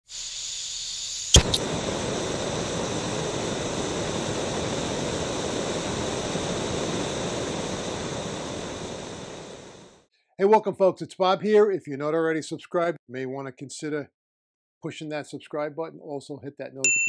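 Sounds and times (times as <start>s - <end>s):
sharp cracks: 1.3s - 1.8s
steady rushing noise: 1.4s - 10.0s.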